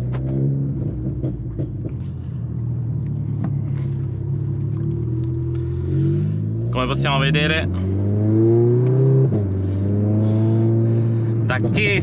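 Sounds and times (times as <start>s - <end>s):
car engine idling from inside cabin: 1.4s - 5.7s.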